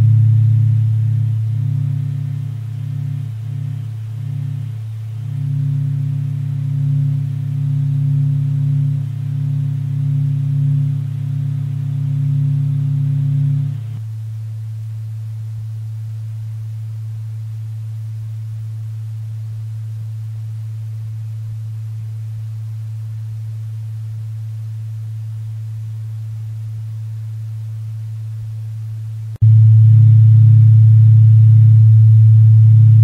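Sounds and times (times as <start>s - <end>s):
fuller tone with overtones: 0.0s - 27.6s, 29.4s - 33.0s
low sine tone: 0.0s - 33.0s.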